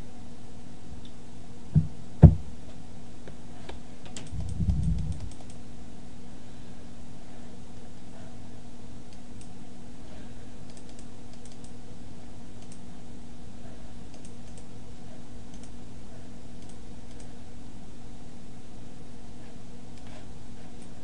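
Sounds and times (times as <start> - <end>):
low hum and hiss: 0.0 - 21.0
computer mouse and keyboard clicks: 3.7 - 5.6, 10.6 - 11.8, 12.6 - 12.8, 14.1 - 14.7, 15.5 - 15.8, 16.6 - 17.3.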